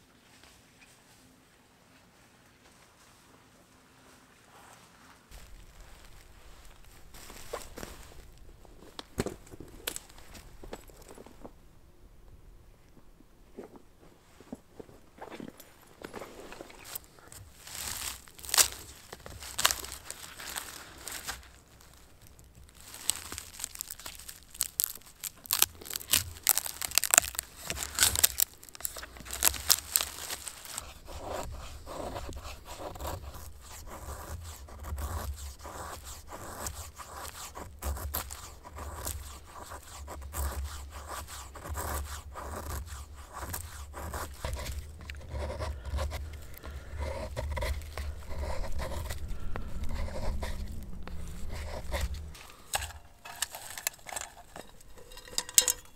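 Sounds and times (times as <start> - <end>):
knife shaving wood: 5.3 - 11.2, 16.0 - 55.9
wood cracking and splitting: 5.3 - 11.3, 16.4 - 55.9.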